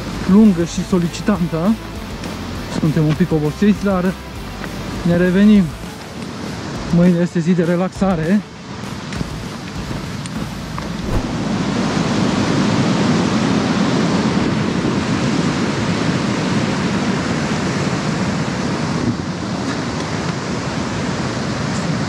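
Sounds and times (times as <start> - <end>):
stream rushing over rocks: 0.0 - 22.0.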